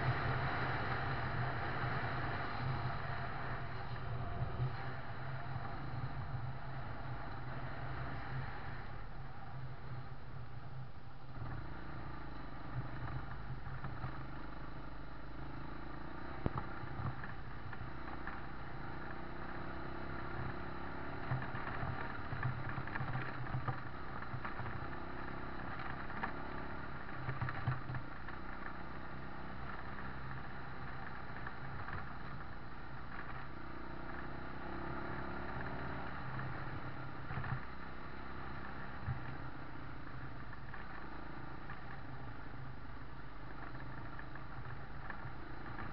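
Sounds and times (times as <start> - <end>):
motorcycle engine running: 0.0 - 45.9.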